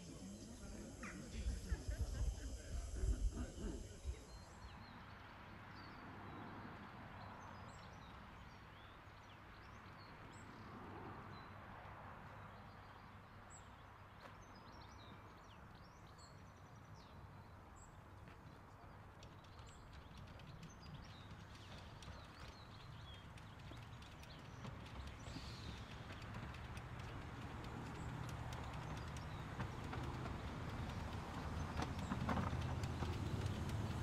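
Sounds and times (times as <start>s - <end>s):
small birds chirping: 0.0s - 11.6s, 12.3s - 34.0s
light clicks: 19.1s - 34.0s.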